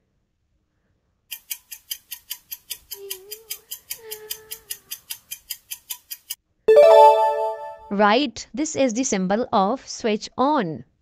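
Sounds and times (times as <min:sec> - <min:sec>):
clock ticking: 0:01.3 - 0:06.4.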